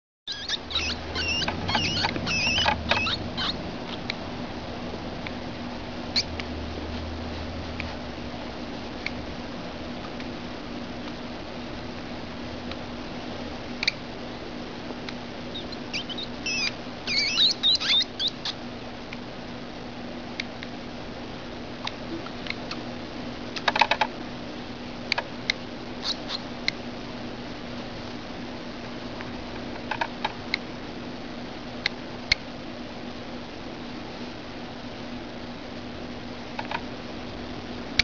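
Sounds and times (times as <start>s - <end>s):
baby hedgehogs squeaking: 0.3s - 4.2s, 6.1s - 6.4s, 15.5s - 18.6s, 26.0s - 26.5s
steady low hum: 0.3s - 38.0s.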